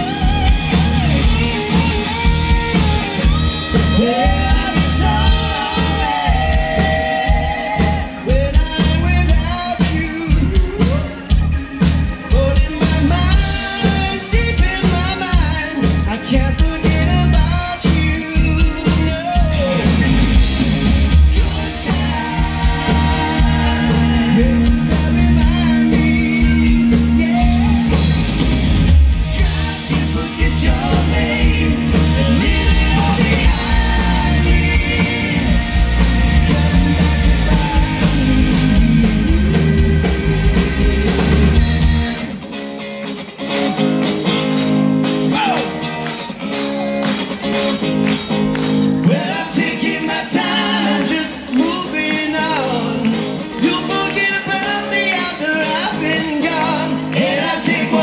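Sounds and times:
live rock band playing: 0.0 - 58.0
people singing: 3.2 - 11.1, 21.3 - 28.1, 29.3 - 39.9, 49.0 - 58.0.

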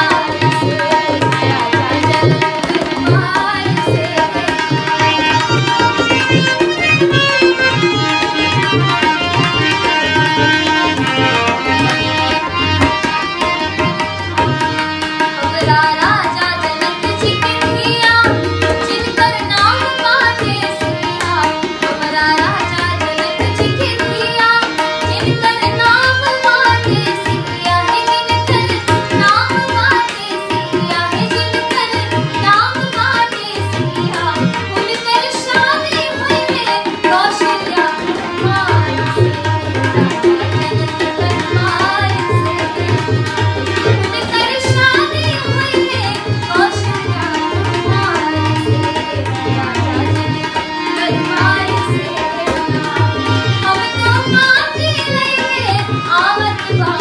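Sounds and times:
harmonium: 0.0 - 57.0
tabla drumming: 0.0 - 57.0
woman singing: 0.0 - 57.0.

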